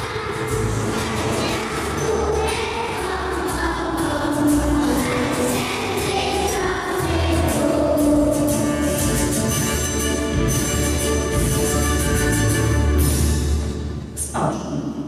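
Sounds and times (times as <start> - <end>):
group singing slow song: 0.0 - 9.4
instrumental accompaniment: 0.0 - 14.2.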